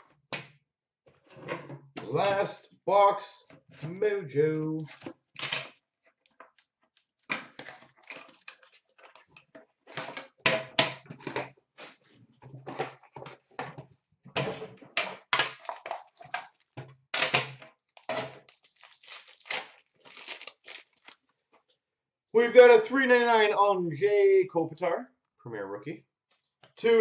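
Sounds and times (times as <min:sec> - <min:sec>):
cardboard and tin rustling: 0:07.2 - 0:10.3, 0:15.5 - 0:16.8, 0:18.0 - 0:21.2
foil wrapper crinkling and tearing: 0:15.5 - 0:16.8, 0:17.9 - 0:21.3.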